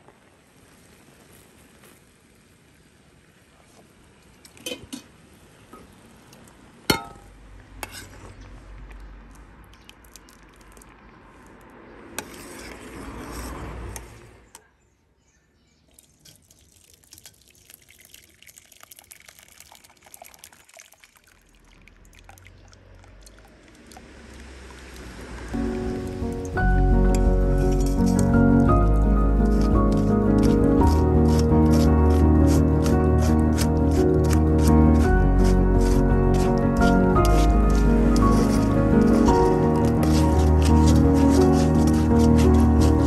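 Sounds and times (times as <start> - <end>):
spoon clinking against metal pot: 6.9 - 7.3
faint popping and dripping: 8.8 - 11.7, 15.9 - 25.5
liquid pouring: 15.9 - 26.0.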